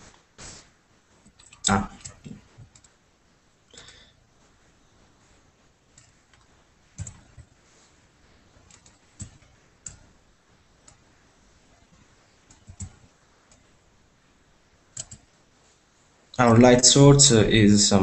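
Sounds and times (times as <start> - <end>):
mouse and keyboard clicks: 5.9 - 7.5, 8.7 - 10.1, 12.4 - 13.6, 14.9 - 15.3.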